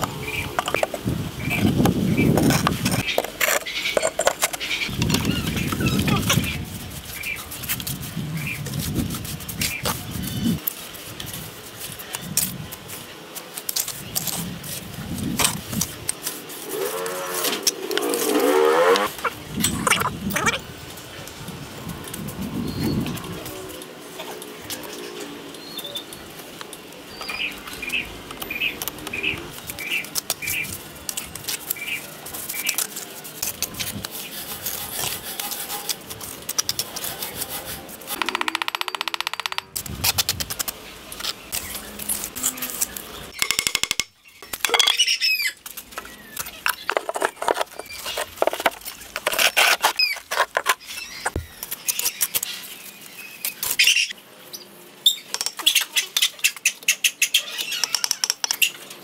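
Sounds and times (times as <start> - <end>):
trowel scraping on mortar: 0.5 - 10.6, 31.2 - 38.4, 46.0 - 52.4.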